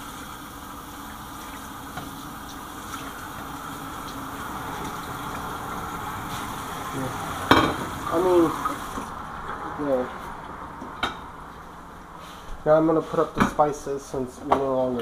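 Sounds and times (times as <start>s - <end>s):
tap water running into sink: 0.0s - 9.1s
dishware clacking: 7.4s - 7.9s.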